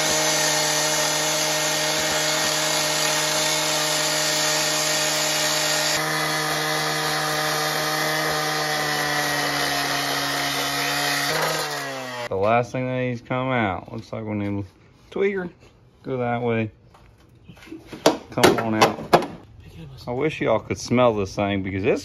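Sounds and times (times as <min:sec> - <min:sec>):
abrasive disc grinding through steel: 0:00.0 - 0:12.3
cut-off saw engine running: 0:00.0 - 0:12.3.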